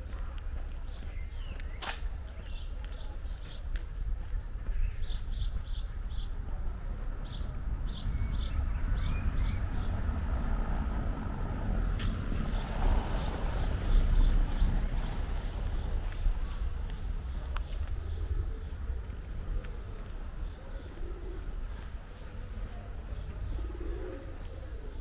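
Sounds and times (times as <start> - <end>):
small birds chirping: 0.0 - 25.0
steady low rumble: 0.0 - 25.0
car passing: 7.1 - 17.3.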